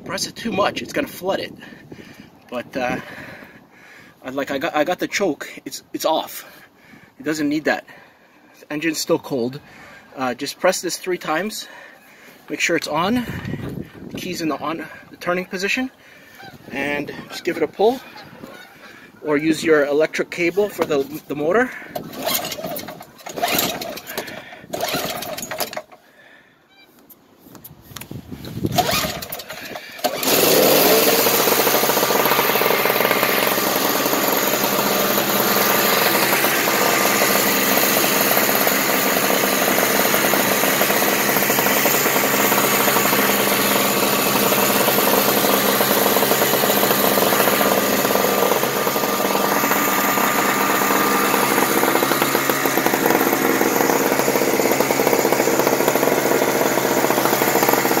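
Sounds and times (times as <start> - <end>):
snow blower engine starting: 0.9 - 4.6, 20.3 - 26.3, 28.4 - 58.0.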